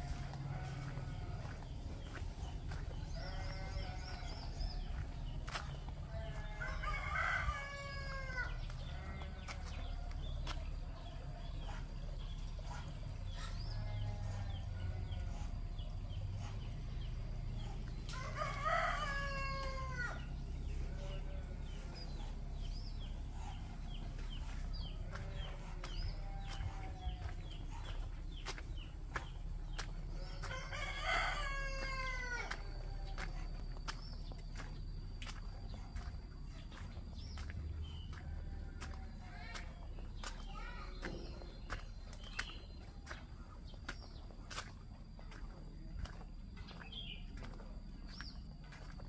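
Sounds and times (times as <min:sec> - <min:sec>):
low steady rumble: 0:00.0 - 0:49.0
rooster crowing: 0:06.3 - 0:08.8, 0:18.1 - 0:20.3, 0:30.3 - 0:33.3.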